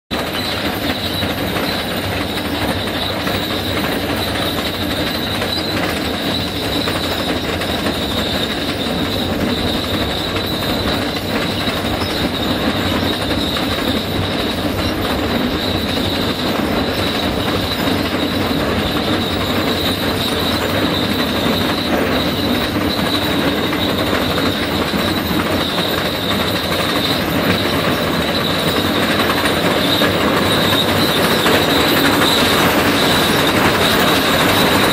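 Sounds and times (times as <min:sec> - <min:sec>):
high-pitched metallic squeal: 0:00.2 - 0:34.9
rock saw grinding through stone: 0:19.9 - 0:34.9.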